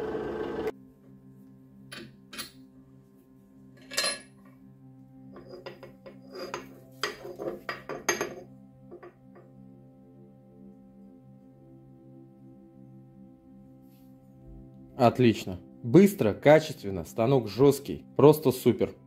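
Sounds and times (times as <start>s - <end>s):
soft background music: 0.7s - 19.0s
metal clinks and scrapes: 3.8s - 4.5s, 5.4s - 8.5s.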